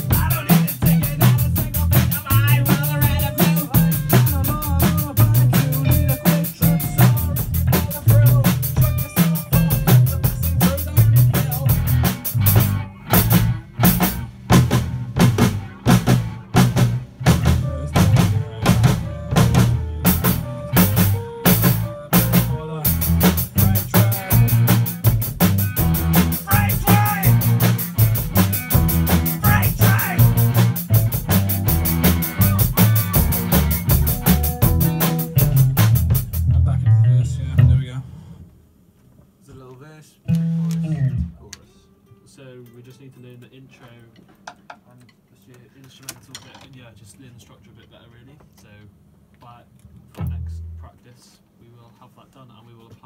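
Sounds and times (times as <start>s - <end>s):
drum hits: 0.0s - 36.8s
rock band playing: 0.0s - 37.8s, 40.3s - 41.5s.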